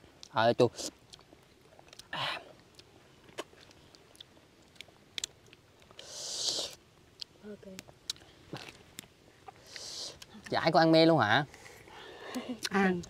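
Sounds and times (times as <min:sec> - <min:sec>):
chewing with sharp clicks: 0:00.2 - 0:10.5.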